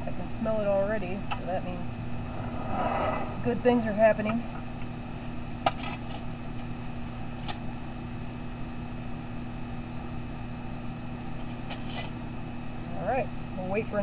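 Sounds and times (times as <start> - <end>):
steady low hum: 0.0 - 5.4.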